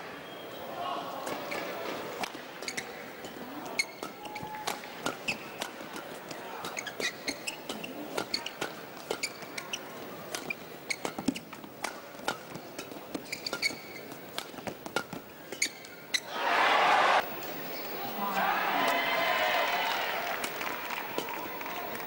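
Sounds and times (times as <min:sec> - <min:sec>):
shoes squeaking on court: 0:01.3 - 0:16.3
rackets striking shuttlecock: 0:03.8 - 0:09.6, 0:10.3 - 0:15.7
crowd cheering and applauding: 0:16.3 - 0:17.2, 0:18.2 - 0:22.0.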